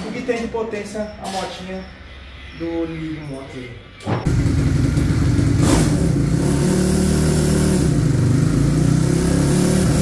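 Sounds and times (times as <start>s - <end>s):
motorcycle engine revving: 4.3s - 10.0s.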